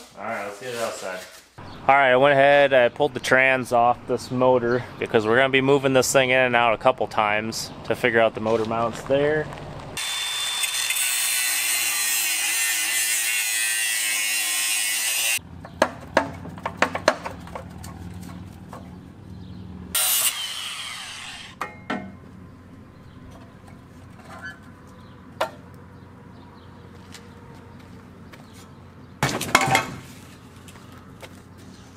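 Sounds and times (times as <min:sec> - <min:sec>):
power tool running: 0:10.0 - 0:15.4, 0:19.9 - 0:21.6
metal clanks and knocks: 0:15.6 - 0:19.0, 0:21.6 - 0:22.4, 0:23.2 - 0:24.8, 0:29.2 - 0:30.1.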